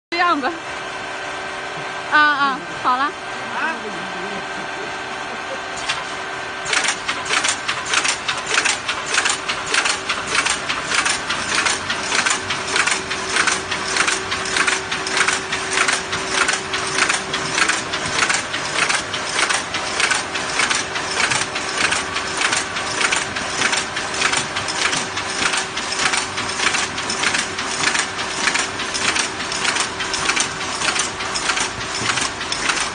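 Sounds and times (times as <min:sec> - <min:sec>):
machine hum: 0:00.1 - 0:32.9
can making machine metallic clatter: 0:06.7 - 0:32.9.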